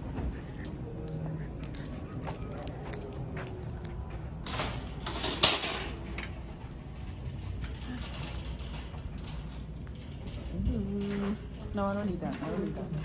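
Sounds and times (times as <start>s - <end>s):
cart rolling with light rattle: 0.0s - 13.0s
metal shopping cart clanking: 4.4s - 13.0s.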